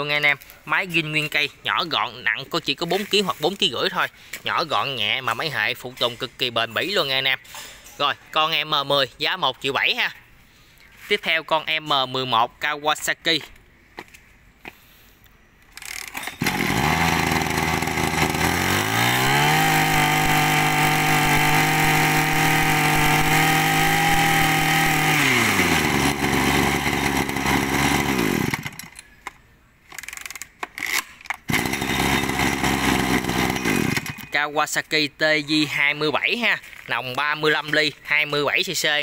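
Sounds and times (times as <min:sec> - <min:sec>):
brush cutter engine: 0:15.8 - 0:29.0, 0:30.9 - 0:34.4.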